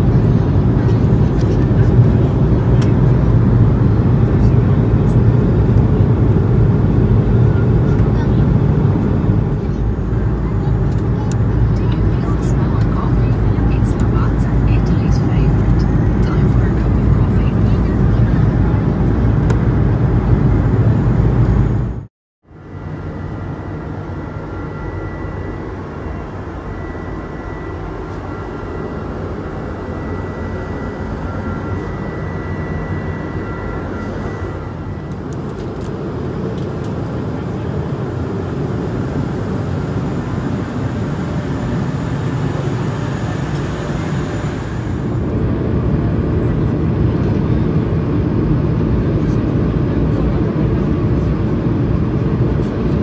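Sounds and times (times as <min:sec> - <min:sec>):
airliner cabin engine roar: 0:00.0 - 0:53.0
faint high steady tone: 0:22.5 - 0:35.9.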